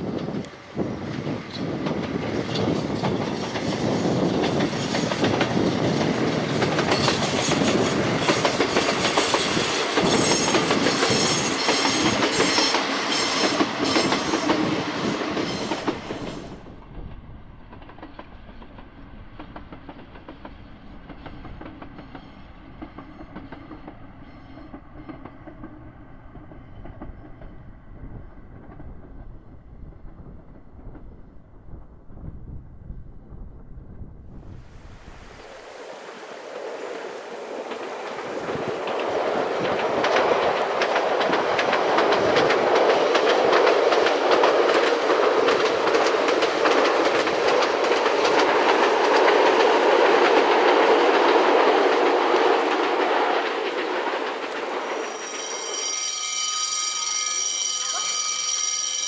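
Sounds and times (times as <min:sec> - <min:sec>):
light wind: 0:00.0 - 0:55.8
distant train running: 0:00.0 - 0:59.0
train wheels clacking over rail joints: 0:01.5 - 0:16.6, 0:37.1 - 0:56.6.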